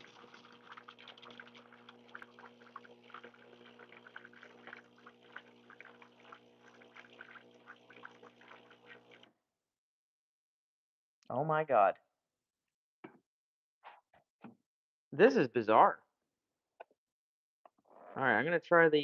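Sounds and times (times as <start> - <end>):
espresso machine spurting water: 0.0 - 9.3.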